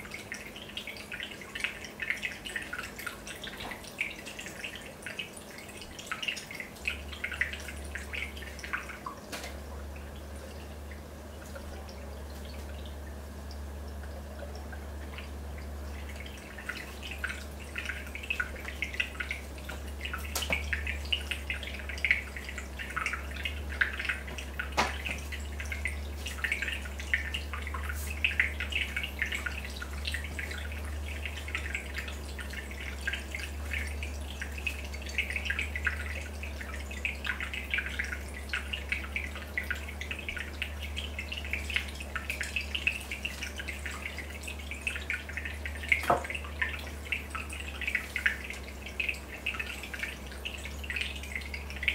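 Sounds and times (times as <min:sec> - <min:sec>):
aquarium water bubbling: 0:00.0 - 0:51.9
steady low hum: 0:00.0 - 0:51.9.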